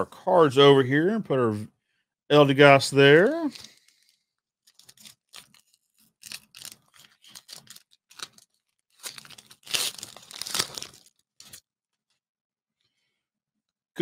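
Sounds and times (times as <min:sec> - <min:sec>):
foil wrapper crinkling and tearing: 0:03.4 - 0:11.7.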